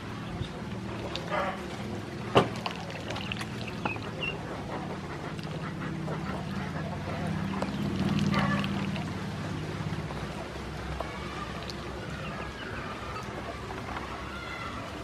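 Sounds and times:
small water splashes: 0:00.0 - 0:15.0
ducklings peeping: 0:03.1 - 0:08.9, 0:12.0 - 0:13.3.

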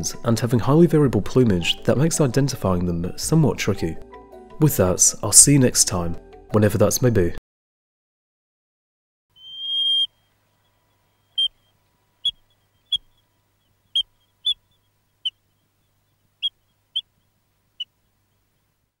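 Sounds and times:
short sharp chirps: 0:09.3 - 0:10.2
high bird-like whistle: 0:09.3 - 0:10.3, 0:11.2 - 0:13.1.

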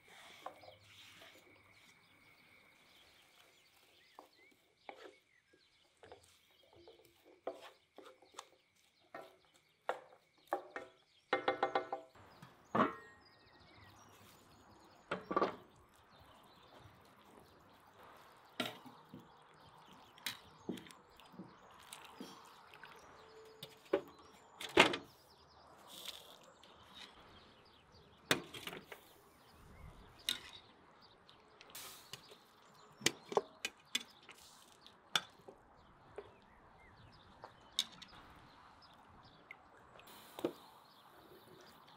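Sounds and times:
wooden spatula scraping in a pan: 0:07.1 - 0:08.3.

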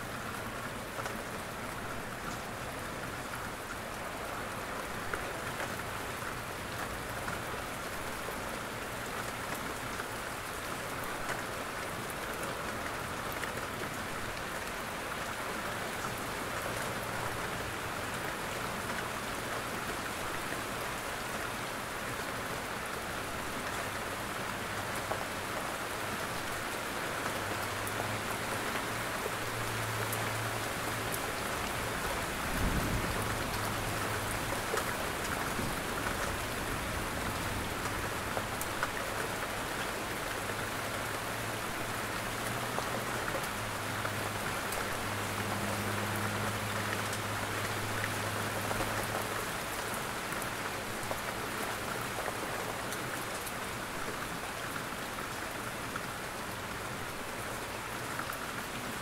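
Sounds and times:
heavy rain: 0:00.0 - 0:59.0.

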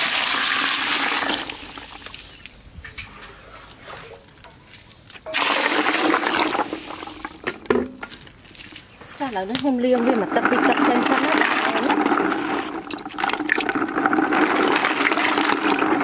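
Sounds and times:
water pouring into plastic bucket: 0:00.0 - 0:02.3, 0:05.3 - 0:07.5, 0:10.0 - 0:16.0.

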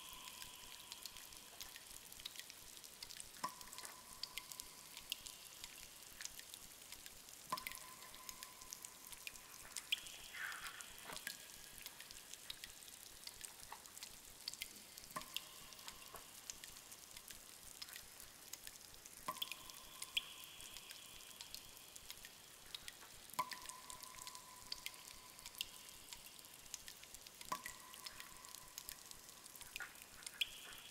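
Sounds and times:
faint steady hiss: 0:00.0 - 0:30.9
water dripping in a cave: 0:00.0 - 0:30.9.

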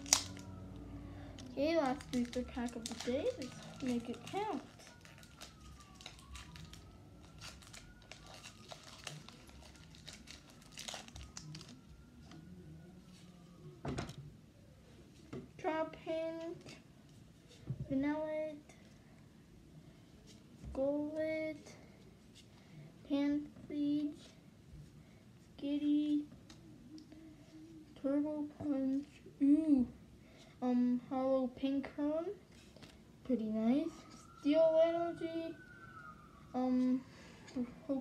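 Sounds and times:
foil wrapper tearing and crinkling: 0:00.0 - 0:00.4, 0:01.8 - 0:11.8.

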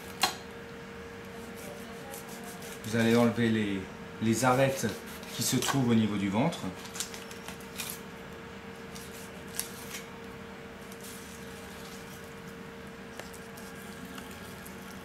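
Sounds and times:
knife scraping on cutting board: 0:01.4 - 0:03.3, 0:04.4 - 0:05.8.

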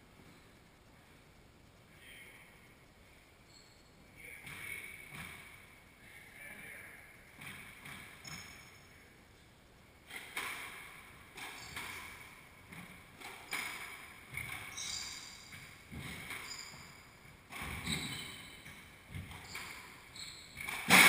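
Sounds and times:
squash ball hitting rackets and walls: 0:04.4 - 0:05.7, 0:07.4 - 0:08.8, 0:10.1 - 0:21.0
sneakers squeaking on hardwood: 0:07.4 - 0:08.8, 0:11.4 - 0:21.0.

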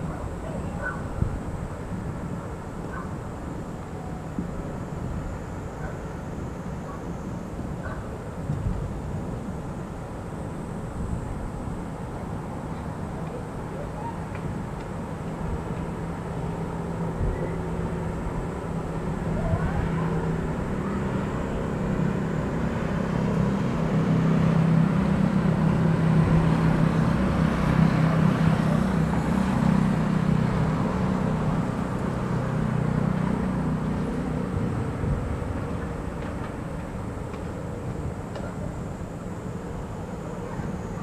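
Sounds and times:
vehicle engine rumble passing: 0:15.0 - 0:41.0.

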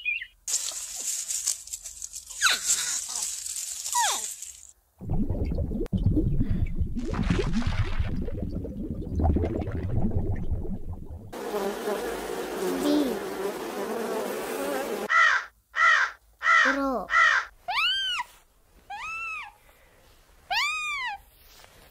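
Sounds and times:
low underwater rumble: 0:05.0 - 0:11.3
bee buzzing: 0:11.3 - 0:15.1
otters squeaking and chirping: 0:18.9 - 0:19.6.

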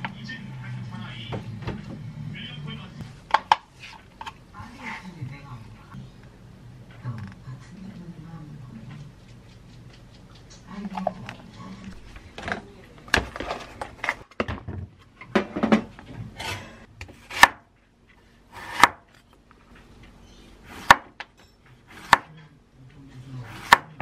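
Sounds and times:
knife chopping on wooden board: 0:17.1 - 0:17.7, 0:18.6 - 0:19.1, 0:20.7 - 0:21.2, 0:21.9 - 0:22.3, 0:23.5 - 0:24.0.

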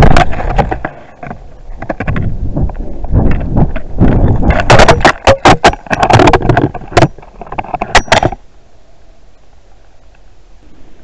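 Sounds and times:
wind buffeting microphone: 0:01.7 - 0:05.3
sharp rattling knocks: 0:03.2 - 0:08.4.

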